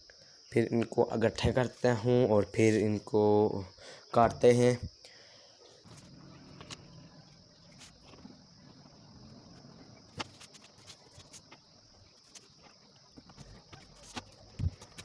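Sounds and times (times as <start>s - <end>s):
steady high-pitched hum: 0.0s - 15.0s
paper sheets rustling: 10.1s - 11.6s, 12.2s - 15.0s.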